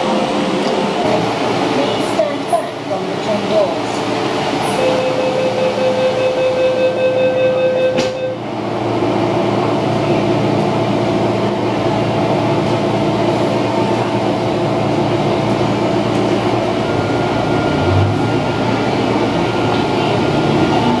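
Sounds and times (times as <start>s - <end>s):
train equipment hum: 0.0s - 21.0s.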